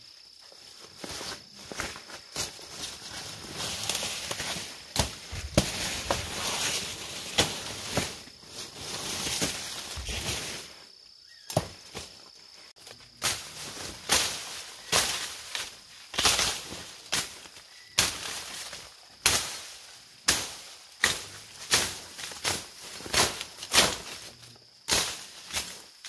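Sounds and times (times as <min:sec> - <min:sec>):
stems cracking: 0:03.5 - 0:08.3, 0:12.8 - 0:25.9.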